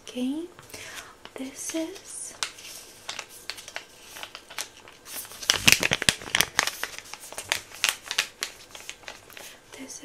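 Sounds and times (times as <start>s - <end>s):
plastic sachet crinkling: 1.6s - 9.6s.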